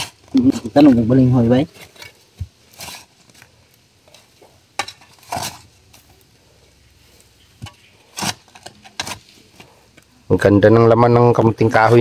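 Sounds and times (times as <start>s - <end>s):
hoe scraping dry soil: 5.0s - 5.7s.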